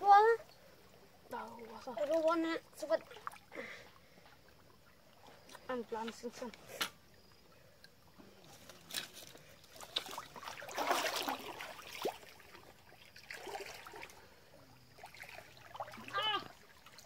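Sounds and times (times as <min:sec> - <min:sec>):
creek water trickling and sloshing: 0:00.0 - 0:17.0
water splash: 0:08.8 - 0:17.0.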